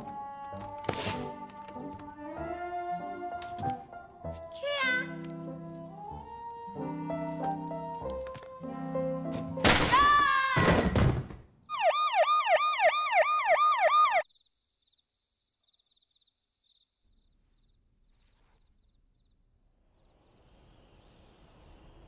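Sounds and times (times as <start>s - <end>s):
boards breaking: 10.6s - 11.4s
siren wailing: 11.7s - 14.2s
faint night ambience hiss: 14.2s - 22.0s.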